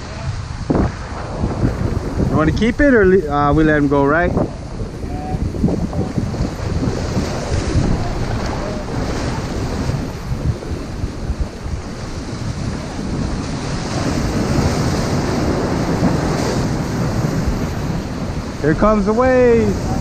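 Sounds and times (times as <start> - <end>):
surf breaking over rocks: 0.0 - 20.0
wind buffeting microphone: 0.0 - 20.0.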